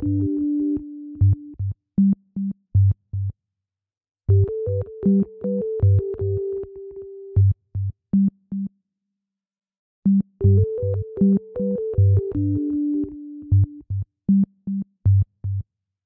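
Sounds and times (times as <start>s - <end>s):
electronic music with synthesizer: 0.0s - 1.5s, 4.3s - 7.3s, 10.4s - 13.8s.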